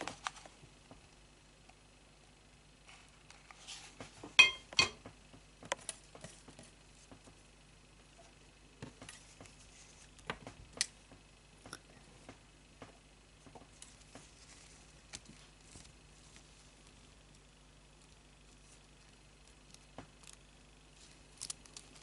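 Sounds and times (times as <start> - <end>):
wire stems clicking and rustling: 21.0 - 22.0.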